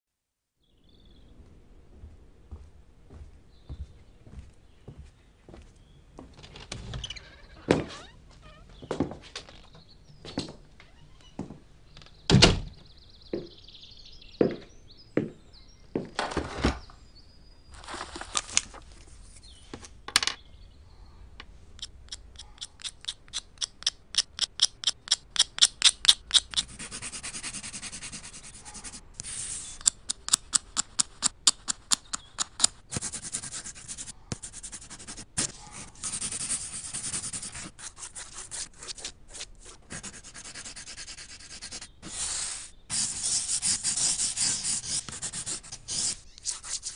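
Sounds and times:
pencil scratching on paper: 21.8s - 46.9s.

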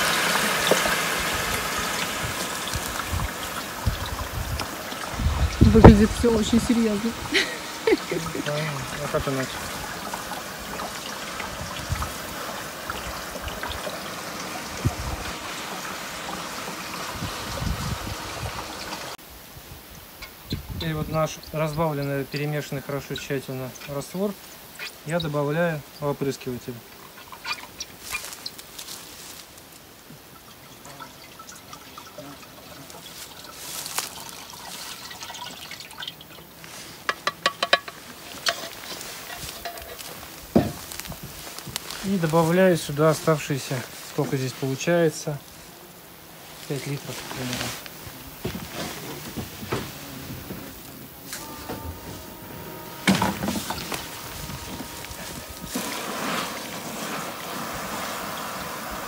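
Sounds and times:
liquid trickling and dripping: 0.0s - 19.2s, 25.9s - 28.9s, 29.6s - 42.7s
water pouring into container: 0.0s - 19.2s, 30.3s - 36.6s, 52.2s - 59.0s.

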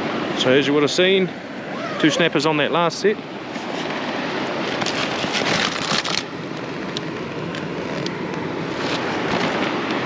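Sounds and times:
surf on beach: 0.0s - 10.0s
plastic bags rustling: 4.8s - 6.3s.

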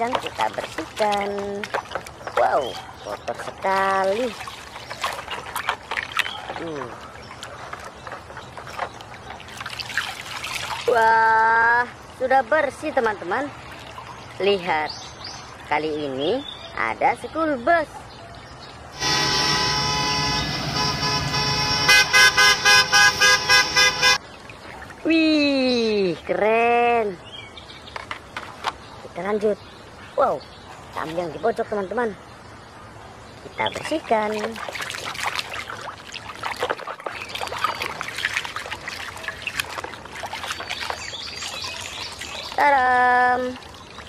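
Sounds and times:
water sloshing in plastic basin: 0.0s - 11.7s, 12.7s - 15.7s, 27.8s - 28.9s, 33.5s - 44.0s
small splashes and drips: 0.0s - 15.8s, 24.2s - 26.0s, 33.6s - 44.0s
bus horn blast: 19.0s - 24.2s
short horn honks: 19.0s - 24.2s.

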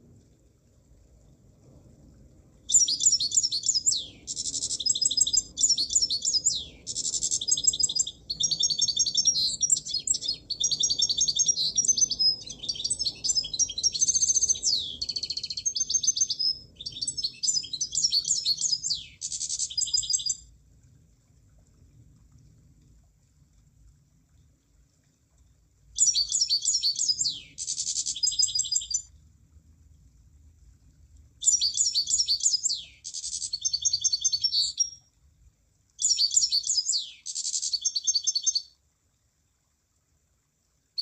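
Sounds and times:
bird trilling song: 2.7s - 20.4s, 26.0s - 29.1s, 31.4s - 35.0s, 36.0s - 38.7s.

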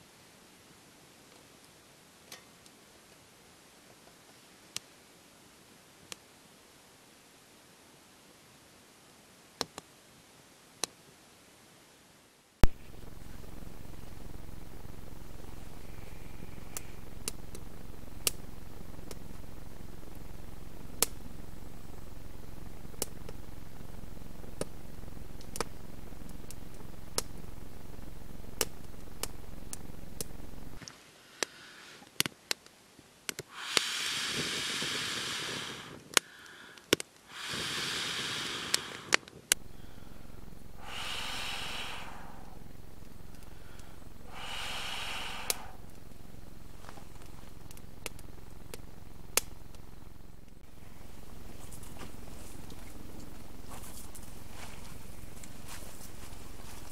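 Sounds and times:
campfire crackling and popping: 2.3s - 3.2s, 12.6s - 56.9s
breathy rushing sounds: 29.4s - 32.2s, 33.5s - 56.8s.

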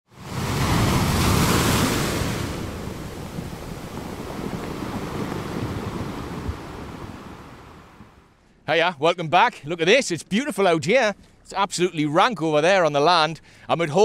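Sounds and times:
wave breaking with a hiss: 0.2s - 7.9s.

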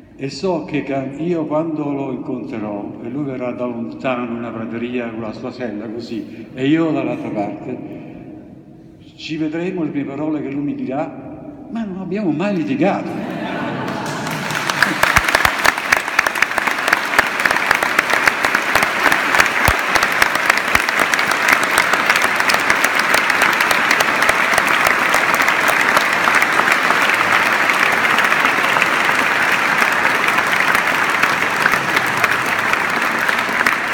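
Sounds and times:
crowd applauding: 13.1s - 33.9s.

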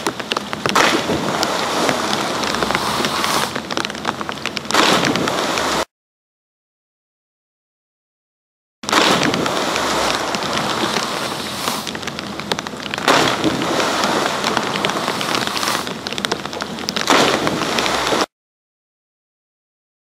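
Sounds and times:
churning water rushing: 0.0s - 5.9s, 8.8s - 18.3s.

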